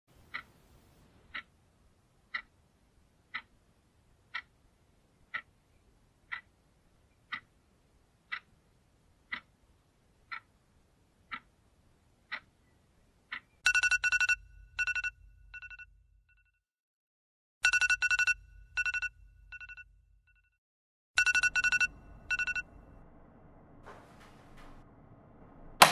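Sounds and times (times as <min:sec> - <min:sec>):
clock ticking: 0:00.2 - 0:00.6, 0:01.3 - 0:01.6, 0:02.3 - 0:02.6, 0:03.3 - 0:03.6, 0:04.3 - 0:04.6, 0:05.3 - 0:05.5, 0:06.2 - 0:06.6, 0:07.3 - 0:07.6, 0:08.3 - 0:08.6, 0:09.2 - 0:09.6, 0:10.3 - 0:10.6, 0:11.3 - 0:11.5, 0:12.3 - 0:12.5
phone alarm beeping: 0:13.6 - 0:15.9, 0:17.6 - 0:19.9, 0:21.2 - 0:23.0.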